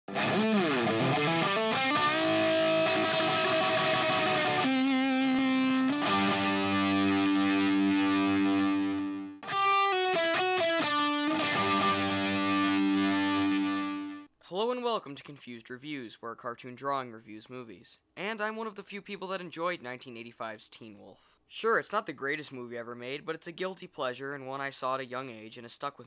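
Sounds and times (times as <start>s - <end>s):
distorted electric guitar music: 0.1s - 14.3s.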